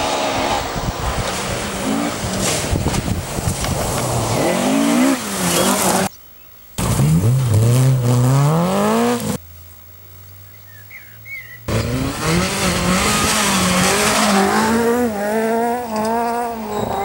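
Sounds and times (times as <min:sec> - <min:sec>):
rally car engine revving: 0:00.0 - 0:06.1, 0:06.8 - 0:09.4, 0:11.7 - 0:17.0.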